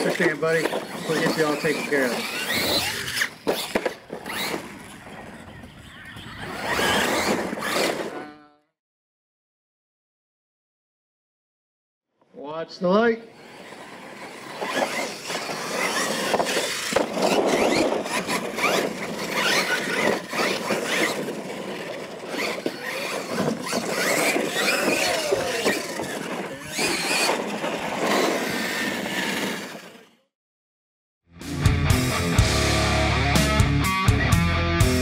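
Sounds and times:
tyres scrabbling on dirt: 0.0 - 8.3, 13.4 - 30.0
electric toy truck motors whining: 0.0 - 8.7, 13.3 - 30.3.

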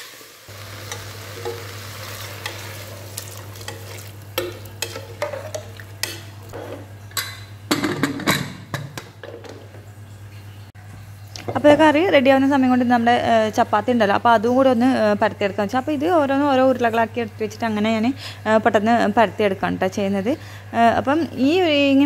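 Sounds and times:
vegetables sizzling in pan: 0.0 - 6.6
ladle scraping and clinking pot: 0.9 - 8.6.

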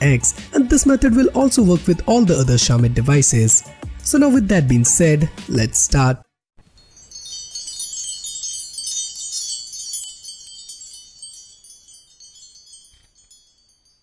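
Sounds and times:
sparkling chime sound effect: 6.7 - 14.0.

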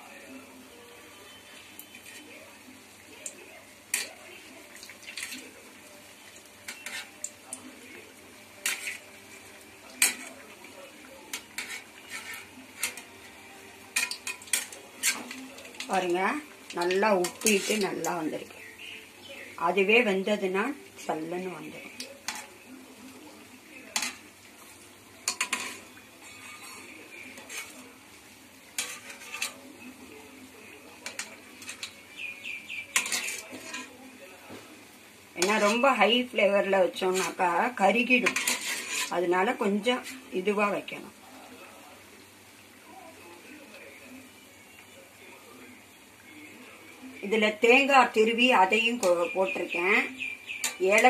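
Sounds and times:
food sizzling in hot oil: 0.0 - 51.0
strainer scraping metal pan: 11.3 - 13.1, 13.9 - 15.4, 28.8 - 29.7, 32.9 - 34.0, 37.0 - 40.3
skimmer clinking against pan: 31.0 - 34.0, 50.2 - 51.0.

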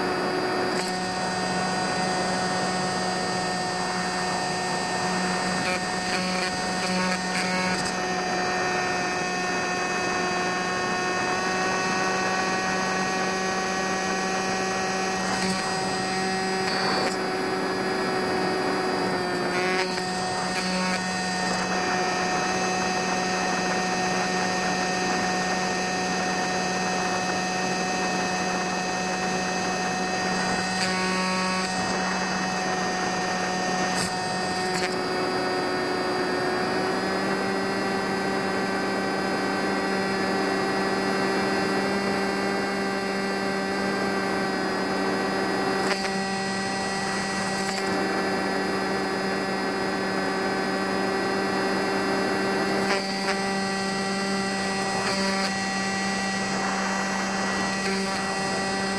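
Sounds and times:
electric motor and propeller whining: 0.0 - 58.9.

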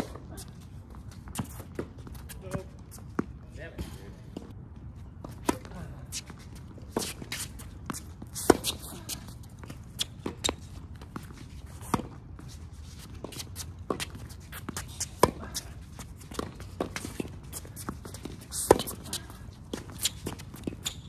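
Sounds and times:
footsteps on court: 0.0 - 21.0
rackets hitting tennis ball: 6.8 - 10.7, 13.2 - 21.0.

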